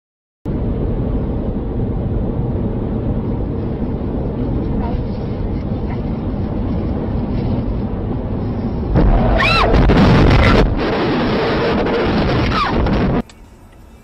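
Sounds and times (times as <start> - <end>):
road and wind noise in car: 0.5 - 14.0
car crash: 8.9 - 13.2.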